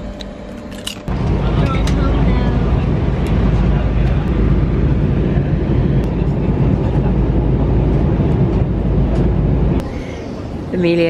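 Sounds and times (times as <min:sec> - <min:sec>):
airliner cabin engine roar: 0:00.0 - 0:11.0.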